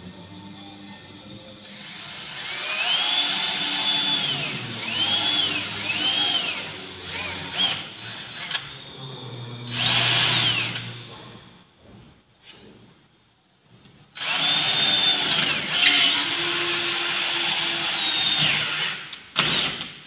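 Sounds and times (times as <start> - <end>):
cordless drill boring into metal: 1.8 - 8.6, 14.2 - 19.8.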